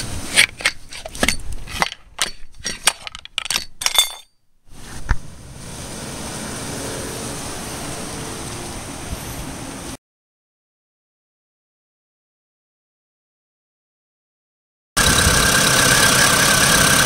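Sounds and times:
metal tool clinking on metal: 0.3s - 4.4s.

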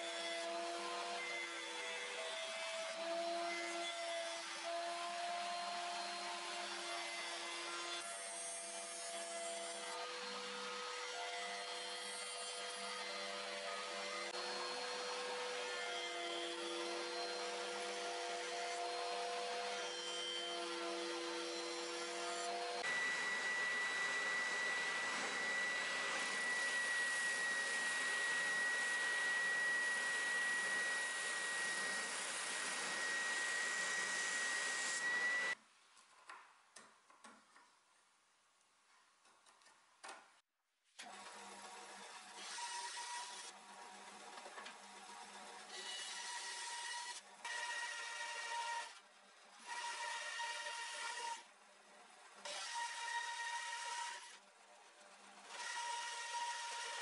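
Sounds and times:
router cutting wood: 0.0s - 35.6s, 41.0s - 49.0s, 55.4s - 57.0s
spindle sander whining: 21.2s - 35.6s.

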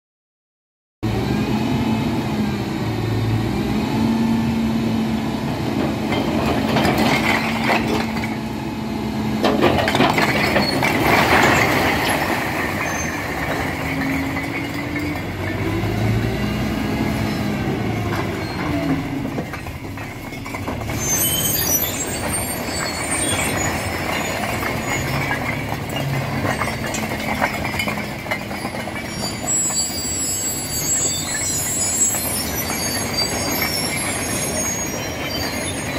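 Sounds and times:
bricks sliding and clattering: 6.1s - 8.4s, 9.4s - 15.8s, 18.1s - 35.9s.

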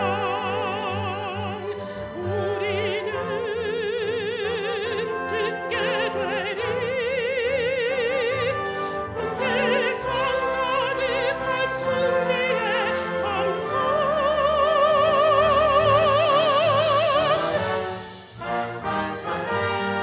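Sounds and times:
woman singing classical song: 0.0s - 18.0s
orchestral accompaniment: 0.0s - 20.0s.

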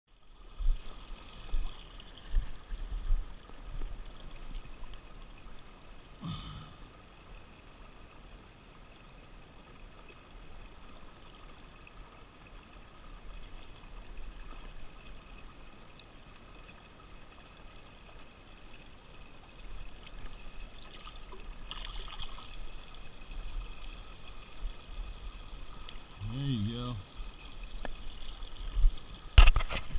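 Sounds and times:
river water lapping: 0.2s - 29.9s.

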